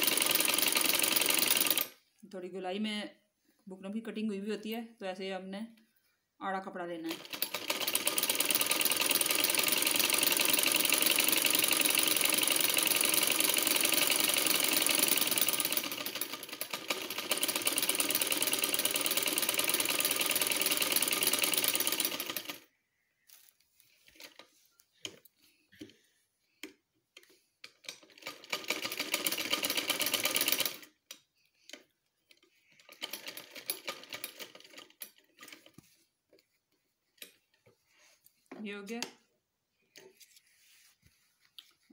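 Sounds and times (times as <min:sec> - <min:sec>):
sewing machine stitching: 0:00.0 - 0:02.0, 0:07.0 - 0:22.6, 0:27.7 - 0:31.0, 0:32.8 - 0:35.8.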